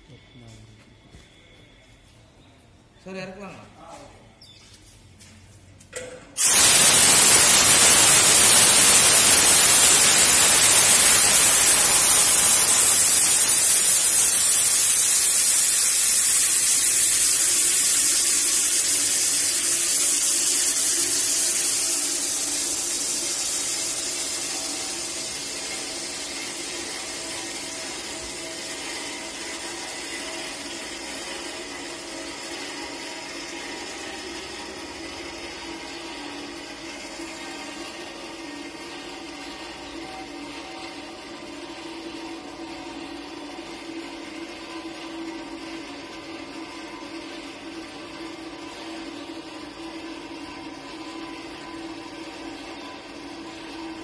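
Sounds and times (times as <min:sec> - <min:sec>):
compressed air hissing from valve: 0:06.4 - 0:32.0.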